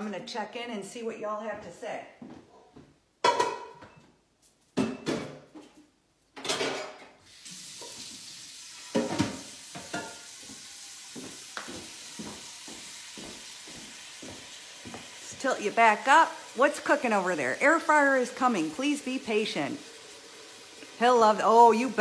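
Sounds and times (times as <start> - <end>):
dishes clattering: 3.2 - 4.0, 6.4 - 7.2, 8.9 - 10.4
tap water running into sink: 7.2 - 22.0.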